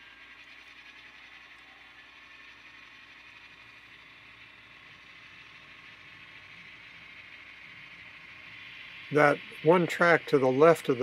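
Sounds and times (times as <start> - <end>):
model train running on track: 0.0 - 11.0.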